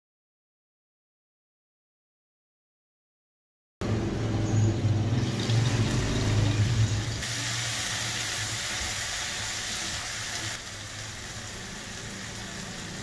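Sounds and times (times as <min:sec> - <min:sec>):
food sizzling in a pan: 0:05.2 - 0:13.0.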